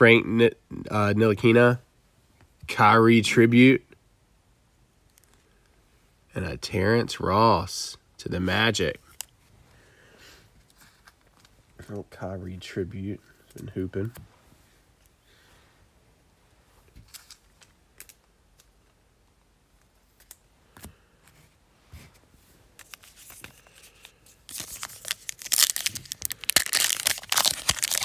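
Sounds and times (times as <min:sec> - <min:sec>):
foil pack crinkling and tearing: 0:22.8 - 0:28.0.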